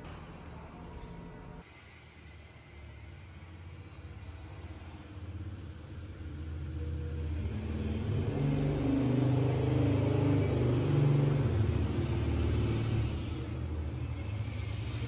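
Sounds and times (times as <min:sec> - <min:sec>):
vehicle engine rumbling: 0:00.0 - 0:01.6.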